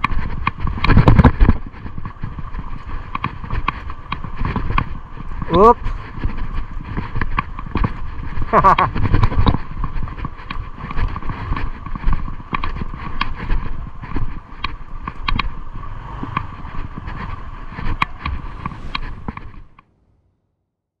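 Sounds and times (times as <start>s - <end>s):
sharp ticks and clicks: 0.0s - 19.9s
wind buffeting microphone: 0.0s - 20.2s
low engine and road rumble: 0.0s - 20.6s
steady hum: 14.3s - 20.5s.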